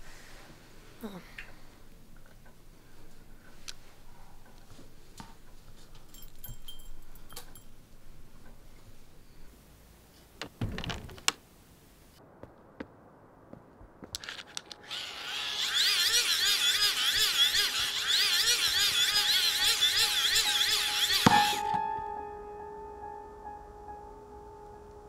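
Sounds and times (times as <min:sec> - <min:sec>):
handling clicks and rustles: 0:10.2 - 0:11.5, 0:14.0 - 0:15.0.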